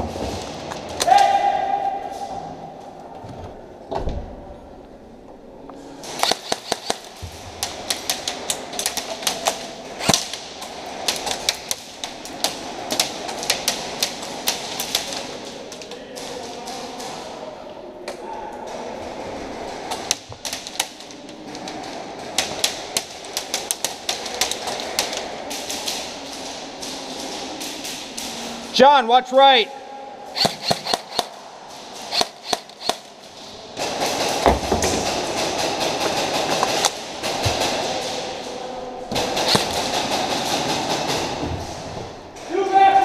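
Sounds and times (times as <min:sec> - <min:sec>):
loud crack: 0:06.0 - 0:15.6, 0:30.4 - 0:38.4, 0:39.1 - 0:41.4
airsoft gunfire clicks: 0:06.1 - 0:07.1, 0:30.4 - 0:31.4, 0:32.1 - 0:33.1, 0:39.2 - 0:40.3.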